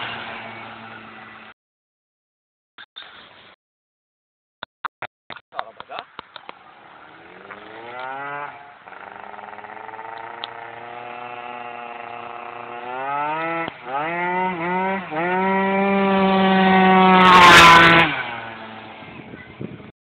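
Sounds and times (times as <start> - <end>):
scooter engine revving: 0.0 - 1.5, 6.7 - 19.6.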